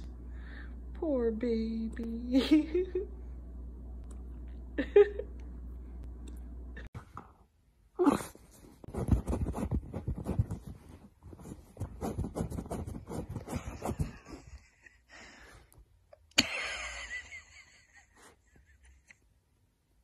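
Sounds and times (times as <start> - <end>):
low steady hum: 0.0 - 20.0
dog rustling and snuffling in fabric: 8.1 - 14.2.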